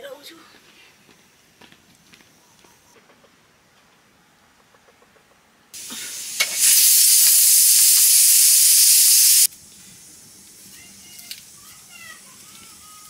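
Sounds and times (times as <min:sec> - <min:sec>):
cooking hiss of steam or hot fat: 0:05.8 - 0:13.0.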